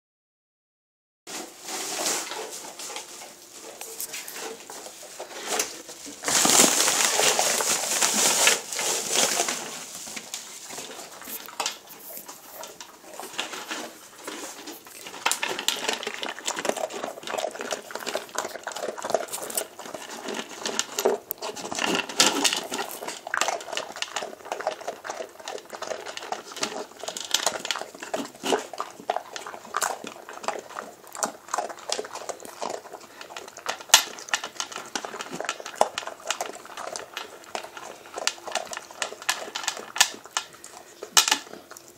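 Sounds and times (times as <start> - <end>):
plastic packaging rustling: 1.3 - 41.9
dog eating from bowl: 1.7 - 41.9
collar rattling against bowl: 2.4 - 41.9.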